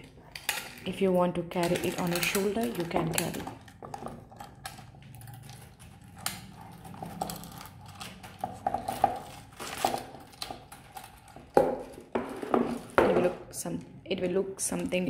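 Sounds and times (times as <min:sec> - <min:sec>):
metal chain clinking: 0:01.6 - 0:11.6.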